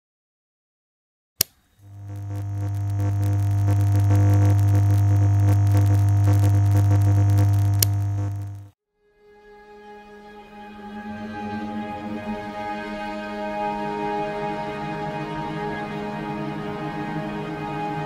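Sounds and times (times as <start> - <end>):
electrical hum: 1.8 - 8.8
lamp switch click: 7.8 - 8.0.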